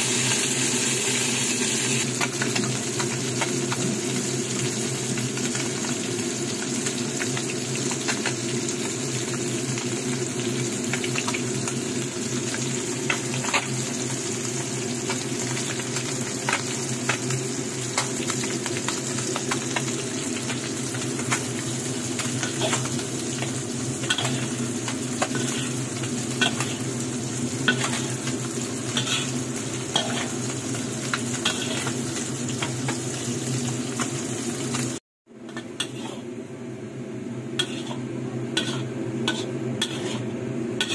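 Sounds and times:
oil sizzling in a frying pan: 0.0s - 36.4s, 37.4s - 40.9s
utensil scraping a pan: 25.2s - 26.9s, 27.6s - 28.3s, 28.9s - 30.4s, 37.6s - 38.0s, 38.6s - 40.9s.

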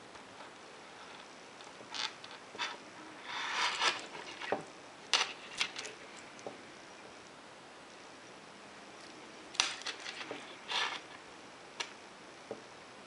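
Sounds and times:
rubbing rustle: 1.9s - 4.6s.

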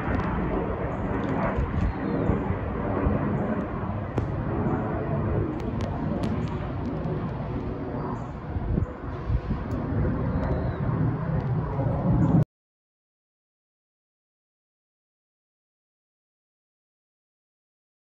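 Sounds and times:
jet aircraft engine rumble: 0.0s - 12.4s.

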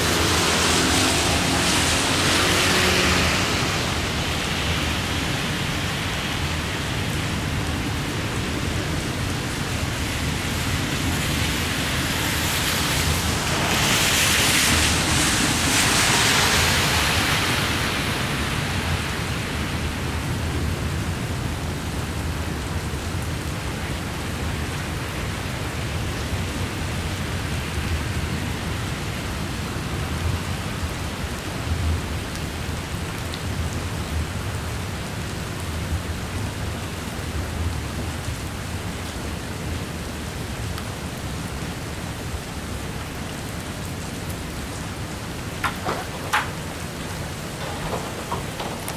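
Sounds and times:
heavy rain pouring: 0.0s - 48.9s
train rumbling past: 45.4s - 48.9s.

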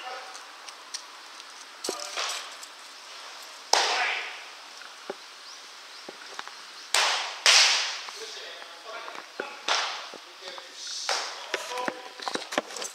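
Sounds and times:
baseballs smacking into mitts: 3.7s - 4.0s, 6.1s - 8.2s, 9.1s - 12.7s.

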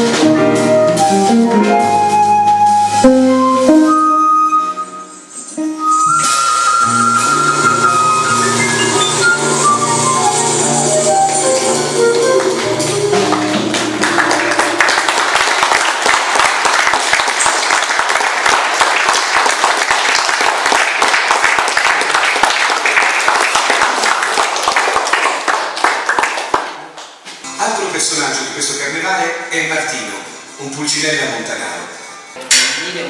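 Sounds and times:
flute guitars and drums playing: 0.0s - 14.8s
audience applause: 8.3s - 27.2s.

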